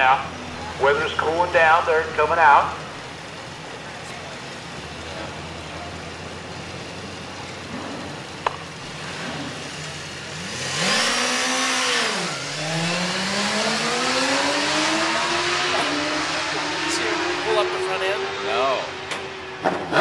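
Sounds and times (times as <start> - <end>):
motorcycle engines idling: 0.0 - 10.6, 11.2 - 20.0
motorcycle engines revving: 0.0 - 20.0
motorcycles accelerating away: 7.3 - 20.0.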